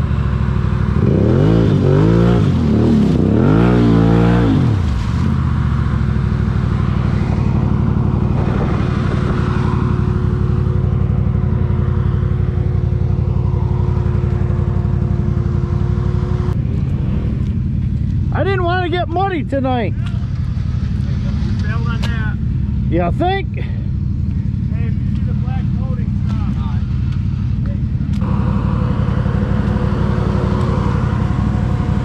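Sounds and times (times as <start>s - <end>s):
atv engine revving: 0.0s - 32.0s
thin steady whine: 5.5s - 32.0s.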